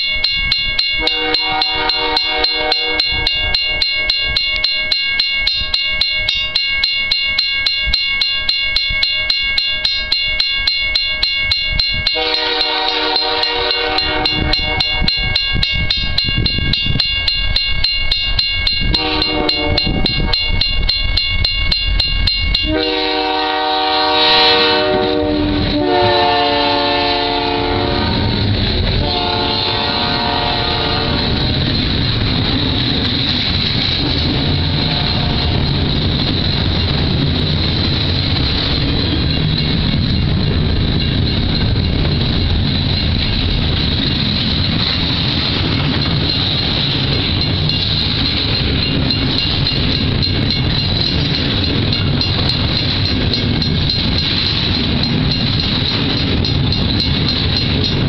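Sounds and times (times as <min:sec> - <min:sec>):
bell ringing rapidly: 0:00.0 - 0:23.3, 0:30.2 - 0:58.0
diesel locomotives rumbling: 0:00.0 - 0:58.0
train air horn: 0:01.0 - 0:03.2, 0:12.2 - 0:15.3, 0:19.0 - 0:20.4, 0:22.7 - 0:31.4, 0:34.8 - 0:35.8
boxcars rolling by: 0:24.7 - 0:58.0.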